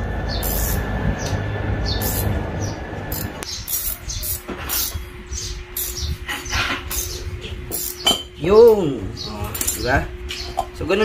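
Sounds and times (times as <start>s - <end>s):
low rumble: 0.0s - 4.3s.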